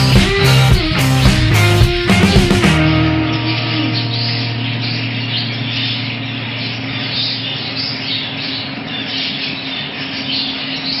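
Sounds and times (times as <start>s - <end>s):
budgerigars chattering: 2.8s - 11.0s.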